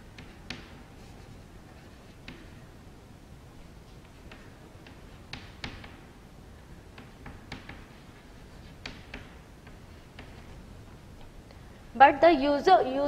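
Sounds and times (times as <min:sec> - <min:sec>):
chalk tapping on chalkboard: 0:00.0 - 0:02.7, 0:03.8 - 0:06.1, 0:06.9 - 0:10.6.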